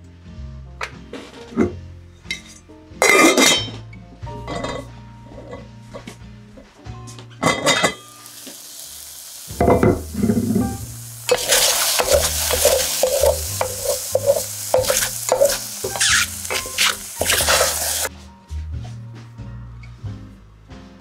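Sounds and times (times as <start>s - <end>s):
steady hiss: 8.2s - 18.1s
wooden spatula scraping pot: 11.3s - 18.1s.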